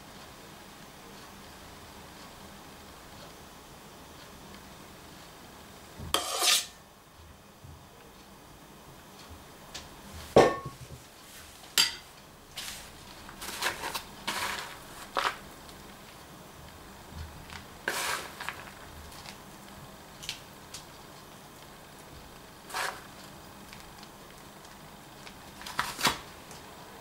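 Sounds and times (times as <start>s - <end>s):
metal spoon clinking against dishes: 11.8s - 12.1s.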